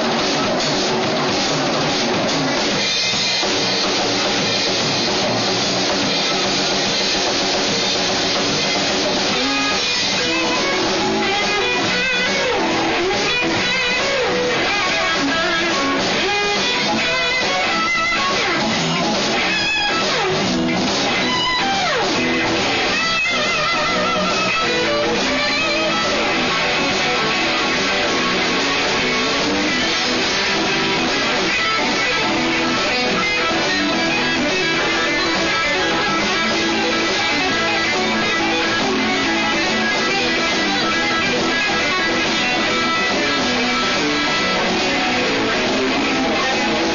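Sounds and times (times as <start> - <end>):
bass guitar: 0.0 - 46.9
drums: 0.0 - 46.9
electric guitars: 0.0 - 46.9.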